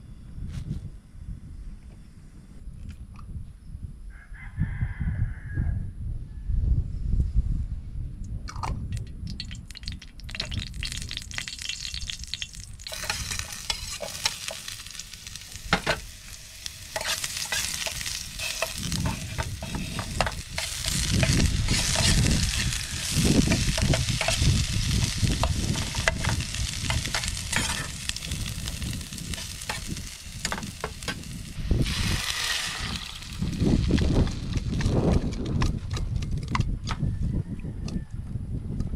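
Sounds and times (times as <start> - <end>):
onion and garlic sizzling in oil: 9.4 - 35.2
metal spoon scraping pan: 12.9 - 14.9, 15.8 - 28.1.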